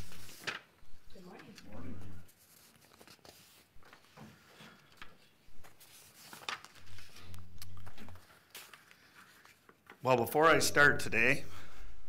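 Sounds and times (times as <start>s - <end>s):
paper rustling and shuffling: 0.0s - 0.8s, 2.3s - 10.1s
low steady hum: 0.0s - 2.3s, 5.5s - 5.9s, 6.8s - 8.2s, 10.4s - 12.0s.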